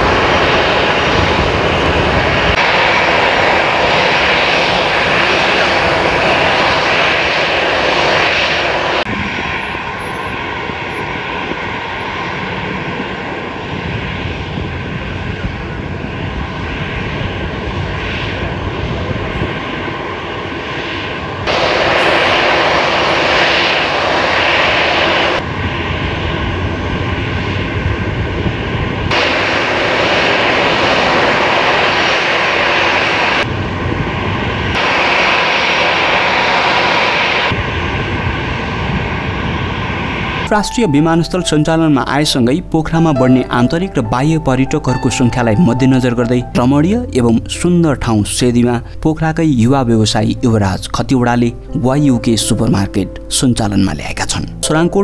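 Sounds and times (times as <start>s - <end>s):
jet engines running at low power: 0.0s - 40.6s.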